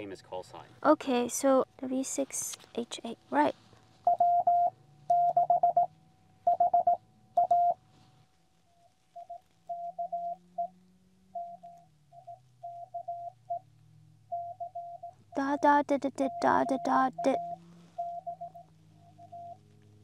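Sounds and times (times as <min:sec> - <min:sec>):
morse code beeping: 0:04.1 - 0:05.9, 0:06.5 - 0:07.8, 0:09.2 - 0:10.7, 0:11.4 - 0:13.6, 0:14.3 - 0:19.6.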